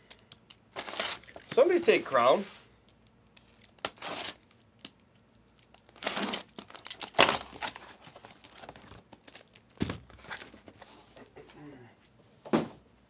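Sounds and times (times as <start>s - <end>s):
plastic wrap crinkling and tearing: 0.0s - 1.6s, 3.4s - 4.9s, 5.5s - 10.6s.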